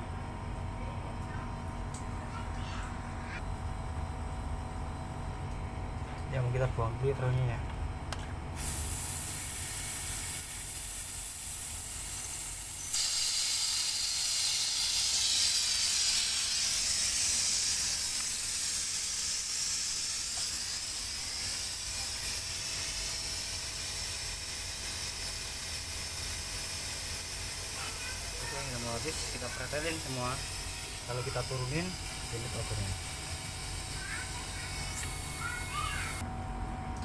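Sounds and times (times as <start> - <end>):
refrigerant hissing from hose: 8.6 - 36.2.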